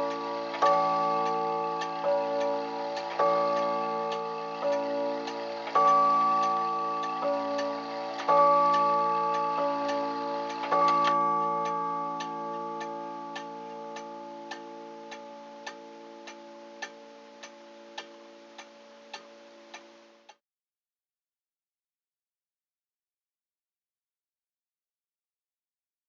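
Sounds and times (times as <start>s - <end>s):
clock striking on chime rods: 0.0s - 19.9s
clock escapement ticking: 0.0s - 20.4s.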